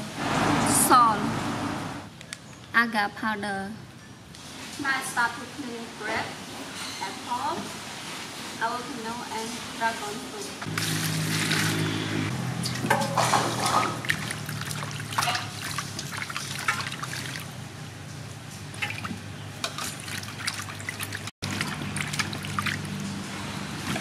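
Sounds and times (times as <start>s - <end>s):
water pouring into metal basin: 10.7s - 12.0s, 12.6s - 17.6s, 18.8s - 23.2s
hands splashing water: 12.6s - 17.6s, 18.7s - 23.1s.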